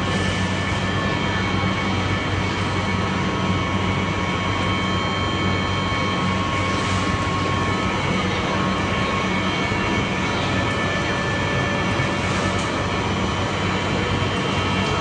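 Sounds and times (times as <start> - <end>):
machine hum: 0.0 - 15.0.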